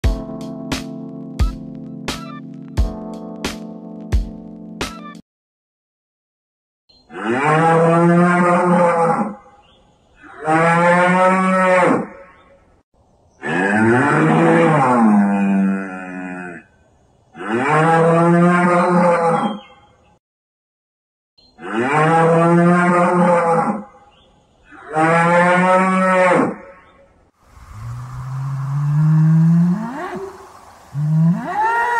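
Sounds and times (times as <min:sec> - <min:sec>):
cattle mooing: 0:13.5 - 0:16.6, 0:27.7 - 0:31.9.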